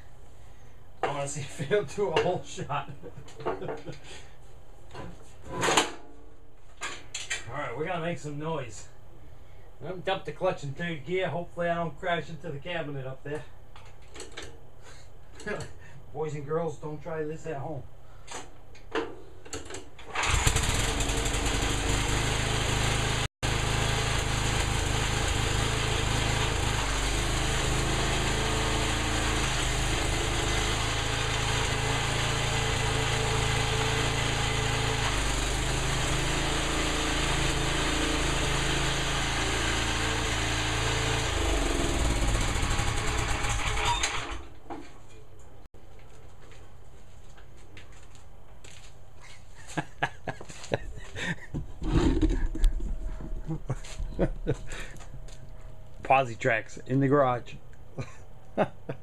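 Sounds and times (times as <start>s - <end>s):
small gasoline engine running: 20.1s - 44.4s, 51.8s - 53.2s.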